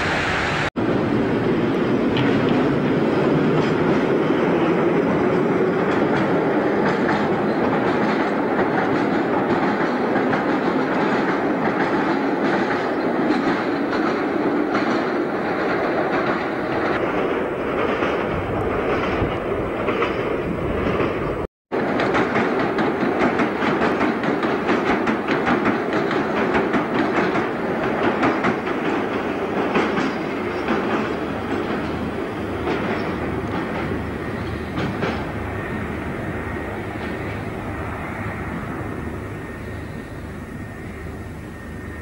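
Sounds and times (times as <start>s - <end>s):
train wheels clattering over rail joints: 1.6s - 40.0s.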